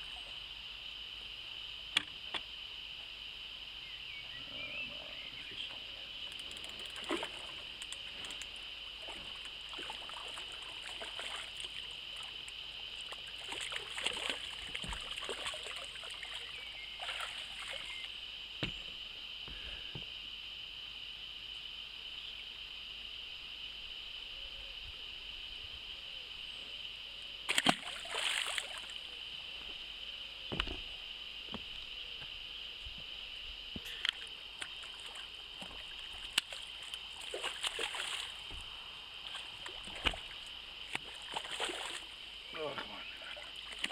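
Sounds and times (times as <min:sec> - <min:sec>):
fish splashing into water: 0:06.8 - 0:08.0, 0:09.0 - 0:12.4, 0:13.0 - 0:18.0, 0:27.5 - 0:28.9, 0:34.2 - 0:38.6, 0:39.2 - 0:42.1, 0:43.4 - 0:43.9.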